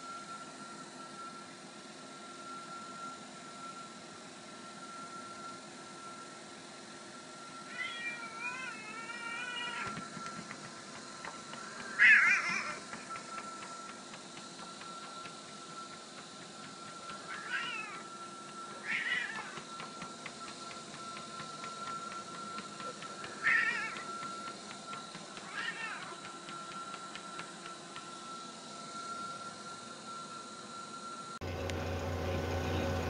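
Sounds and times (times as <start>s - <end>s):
treadmill humming: 0.0s - 33.0s
cat meowing: 7.7s - 9.9s, 17.3s - 18.0s, 18.8s - 19.5s, 23.4s - 24.0s, 25.5s - 26.1s.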